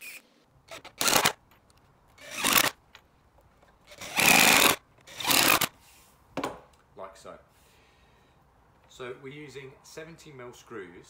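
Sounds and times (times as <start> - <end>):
cordless drill driving screws into wood: 0.0 - 1.4, 2.2 - 2.8, 3.9 - 5.8.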